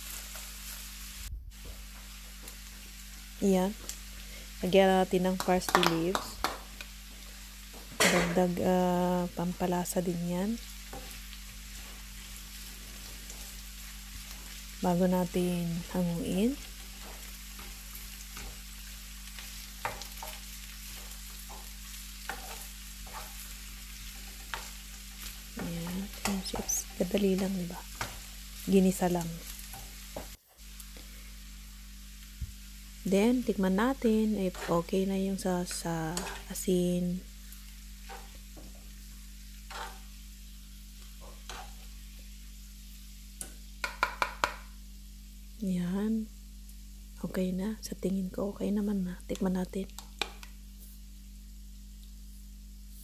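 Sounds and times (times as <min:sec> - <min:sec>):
carrots sizzling in frying pan: 0:00.0 - 0:53.0
metal spoon stirring in pan: 0:10.7 - 0:14.6, 0:16.6 - 0:28.5, 0:34.4 - 0:34.9, 0:35.6 - 0:36.6, 0:38.0 - 0:38.8, 0:39.5 - 0:40.1, 0:41.0 - 0:42.0
metal spoon scraping pan: 0:39.7 - 0:40.0.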